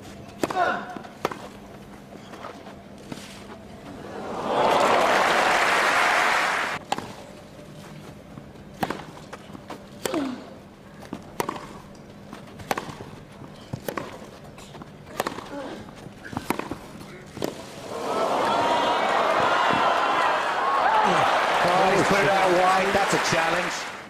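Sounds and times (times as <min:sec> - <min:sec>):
crowd applauding: 0:04.2 - 0:06.8, 0:17.8 - 0:24.0.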